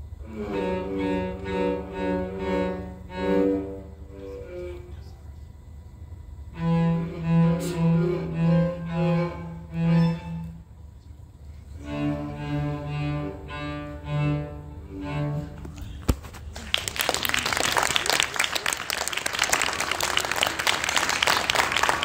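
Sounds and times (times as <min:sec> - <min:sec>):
cellos bowing: 0:00.0 - 0:05.4, 0:06.4 - 0:16.2
audience applauding: 0:16.4 - 0:22.0.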